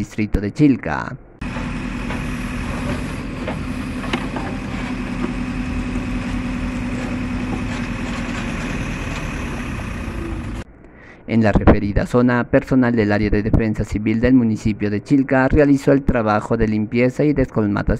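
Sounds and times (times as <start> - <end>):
diesel engine running: 1.4 - 10.7.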